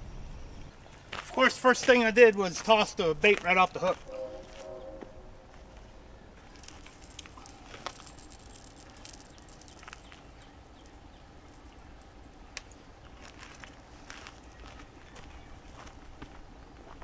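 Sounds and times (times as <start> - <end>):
faint wind rumble: 0.0 - 1.4, 2.1 - 17.0
fishing tackle clicks and rustles: 6.5 - 13.8.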